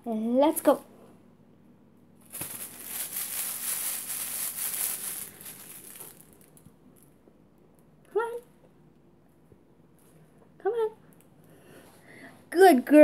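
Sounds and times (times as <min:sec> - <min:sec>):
pouch crinkling and rustling: 0:02.2 - 0:06.6.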